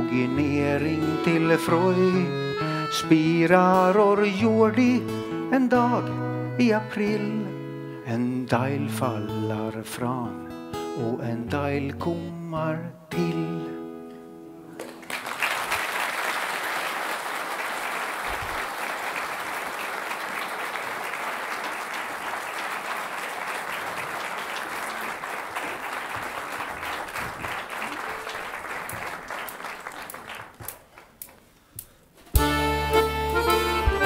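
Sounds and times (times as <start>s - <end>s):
music: 0.0s - 14.8s, 32.3s - 34.0s
audience applauding: 14.8s - 31.4s.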